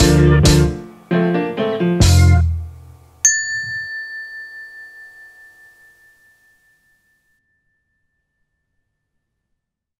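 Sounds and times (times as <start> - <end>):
bell-like chime note: 3.2 - 9.1.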